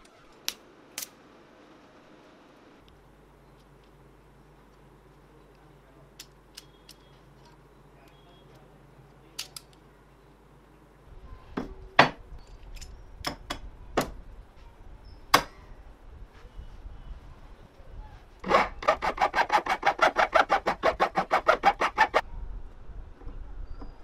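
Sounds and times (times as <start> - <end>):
rasping scraping on wood: 18.4 - 22.2.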